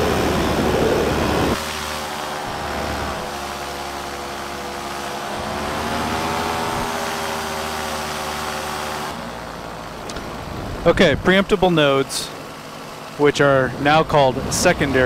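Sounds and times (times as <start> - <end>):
paramotor engine running: 0.0 - 15.0.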